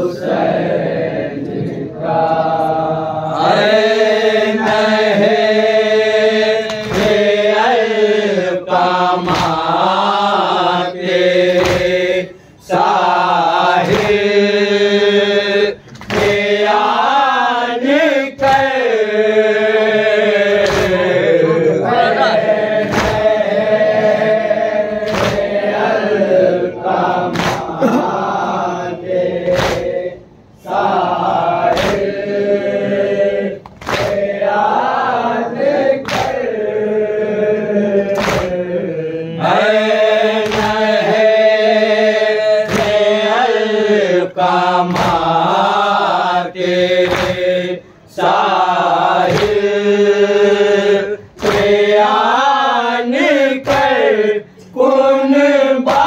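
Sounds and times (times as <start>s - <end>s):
men chanting a lament: 0.0s - 56.0s
chest-beating slaps: 6.6s - 7.5s, 9.2s - 10.1s, 11.4s - 12.2s, 13.8s - 14.3s, 15.9s - 16.5s, 20.4s - 21.2s, 22.8s - 23.4s, 25.0s - 25.7s, 27.3s - 28.2s, 29.4s - 30.0s, 31.7s - 32.2s, 33.6s - 34.3s, 36.0s - 36.5s, 38.1s - 38.6s, 40.4s - 41.0s, 42.6s - 43.1s, 44.8s - 45.4s, 47.0s - 47.5s, 49.2s - 49.7s, 51.4s - 52.0s, 53.6s - 54.1s.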